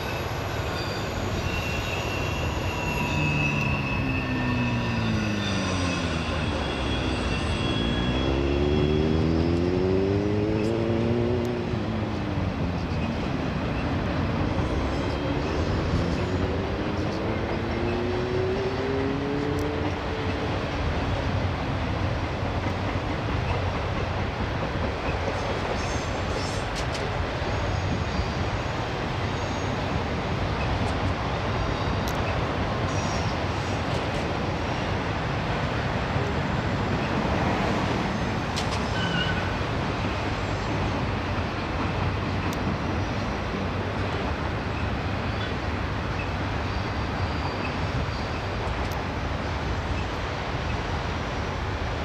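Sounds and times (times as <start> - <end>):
train wheels rumbling on rail: 0.0 - 52.0
thin wheel squeal: 0.2 - 8.6
road vehicles passing: 3.6 - 22.6.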